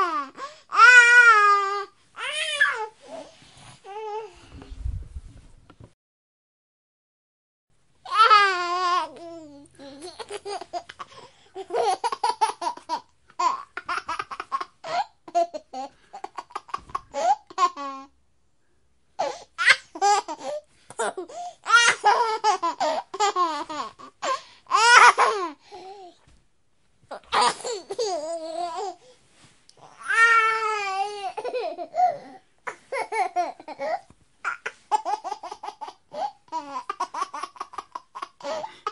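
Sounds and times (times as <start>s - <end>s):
baby giggling: 10.0s - 18.0s, 31.0s - 38.9s.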